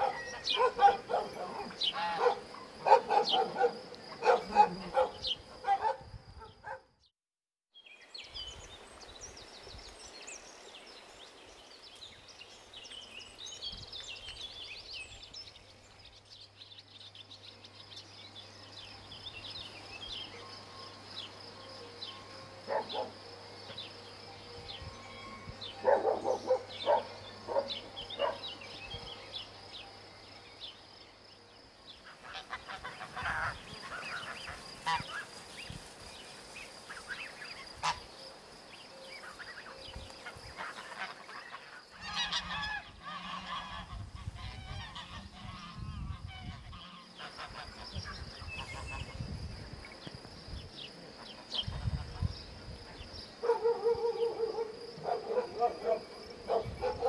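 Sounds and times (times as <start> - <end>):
dogs barking: 0.0 - 6.9, 22.7 - 23.2, 25.8 - 28.6, 53.4 - 57.0
birds chirping: 0.0 - 7.1, 7.8 - 57.0
outdoor background noise: 0.0 - 7.1, 7.7 - 57.0.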